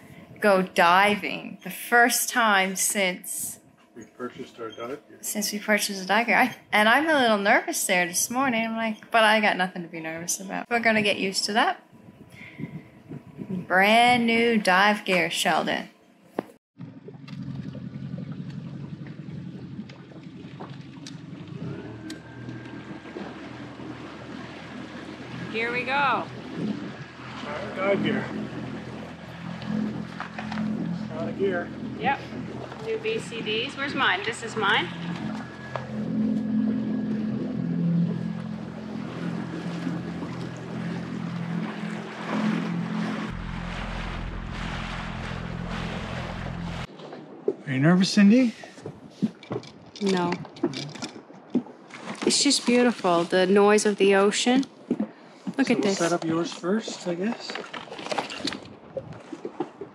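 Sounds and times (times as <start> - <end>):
wind on microphone: 11.8 - 14.6, 19.0 - 47.4, 58.4 - 59.9
deep low rumble: 11.9 - 14.6, 16.8 - 46.9
high whine: 16.8 - 46.9
outboard motor running: 16.8 - 46.9
rushing water: 16.8 - 54.2.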